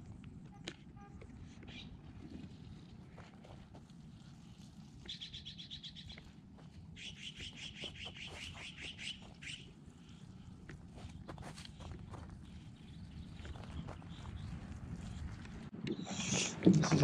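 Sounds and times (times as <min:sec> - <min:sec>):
low outdoor rumble: 0:00.0 - 0:17.0
songbird trilling: 0:05.1 - 0:06.2, 0:07.0 - 0:09.7.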